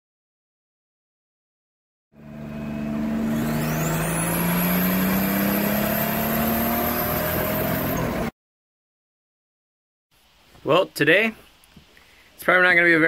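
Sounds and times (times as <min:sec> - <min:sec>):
car engine revving: 0:02.2 - 0:08.3.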